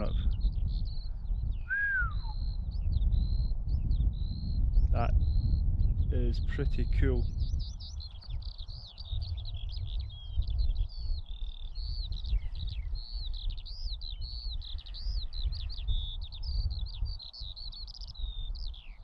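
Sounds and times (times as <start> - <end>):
skylark singing: 0.0 - 19.0
wind on microphone: 0.0 - 19.0.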